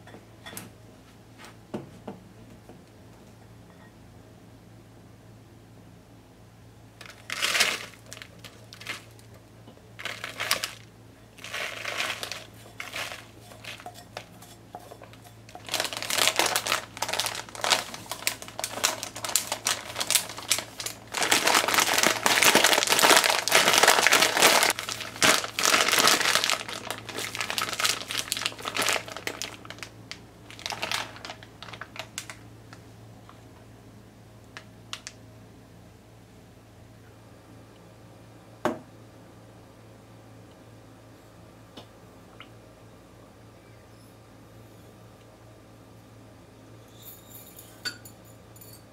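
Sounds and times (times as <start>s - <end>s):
plastic bag crinkling: 7.0s - 9.4s, 10.0s - 14.3s, 14.9s - 32.4s.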